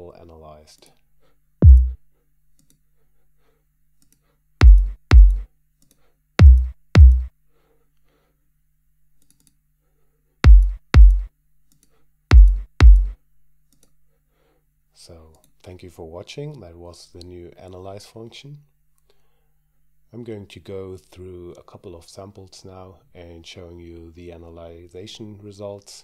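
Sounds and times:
electronic kick drum: 1.6 - 2.0, 4.6 - 5.5, 6.4 - 7.3, 10.4 - 11.3, 12.3 - 13.2.

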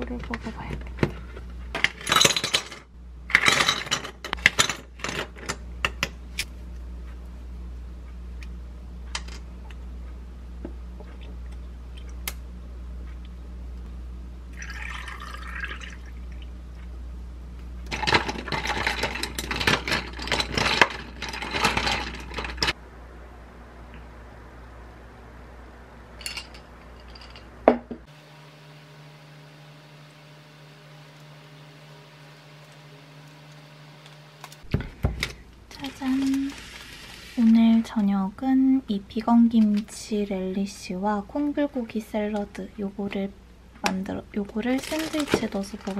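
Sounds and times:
ice clinking and cracking: 14.6 - 16.0, 44.8 - 45.9
water pouring over ice: 14.6 - 16.1.

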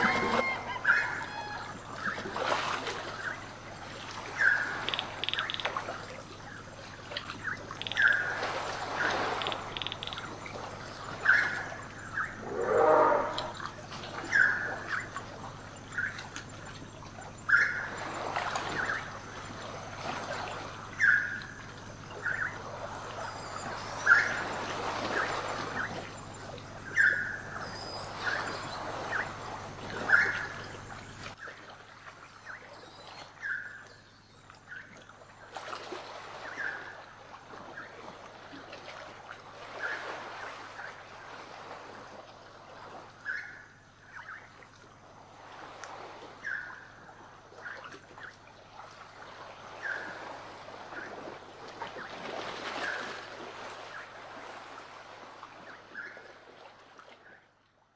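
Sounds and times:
waves washing against shore: 0.0 - 6.2.

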